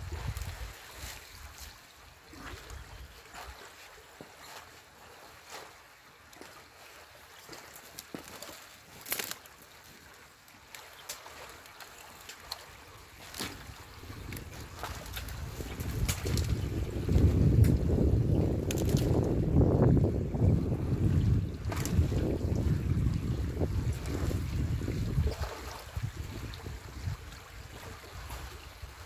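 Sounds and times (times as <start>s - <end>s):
small splashes: 0.0s - 17.8s.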